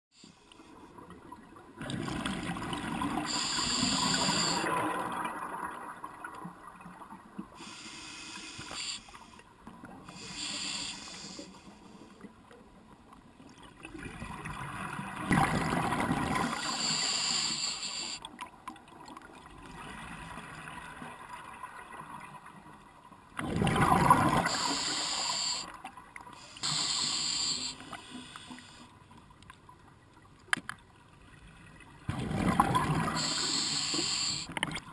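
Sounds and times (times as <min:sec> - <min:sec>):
diver breathing through regulator: 0:03.3 - 0:04.8, 0:07.6 - 0:09.4, 0:10.1 - 0:12.1, 0:16.6 - 0:18.2, 0:24.4 - 0:25.7, 0:26.4 - 0:28.9, 0:33.1 - 0:34.5
exhaled bubbles rushing: 0:14.2 - 0:16.6, 0:23.4 - 0:24.6, 0:32.1 - 0:33.2.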